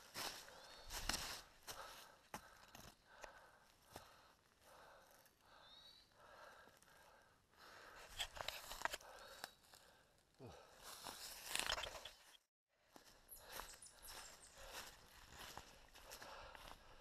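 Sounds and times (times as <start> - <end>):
footsteps crunching through dry leaves: 0.0 - 1.9, 13.4 - 16.7
faint heavy breathing: 0.2 - 11.3, 12.9 - 17.0.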